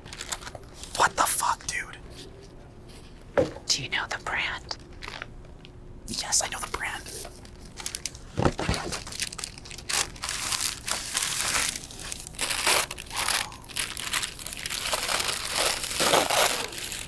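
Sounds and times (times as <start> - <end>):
tissue paper rustling: 7.4 - 17.0.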